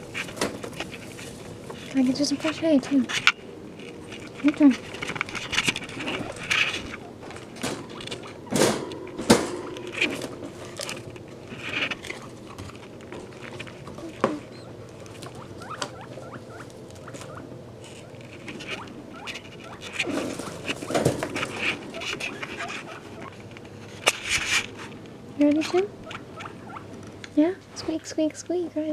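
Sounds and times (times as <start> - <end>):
guinea pigs rustling in hay: 0.0 - 8.5, 9.8 - 26.8
guinea pig squeaks: 13.9 - 23.4, 25.5 - 26.9.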